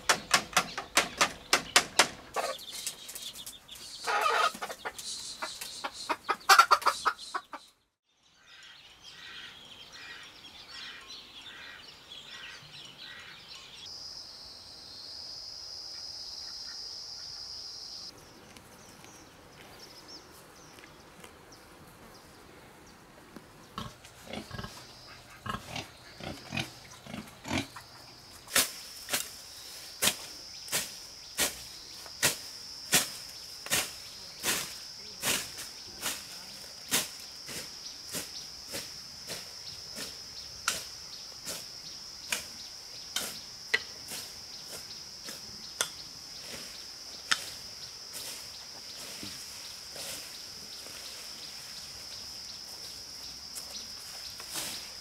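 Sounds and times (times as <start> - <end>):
hand tool striking ground: 0.0 - 4.7, 28.5 - 29.4, 30.0 - 41.7, 43.1 - 46.7, 47.3 - 47.6
high insect drone: 9.4 - 55.0
pigs grunting: 23.7 - 27.9.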